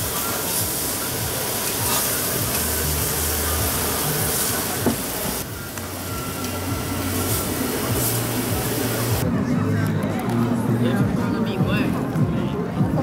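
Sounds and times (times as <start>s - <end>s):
food sizzling on griddle: 0.0s - 9.2s
background music with bass: 0.0s - 13.0s.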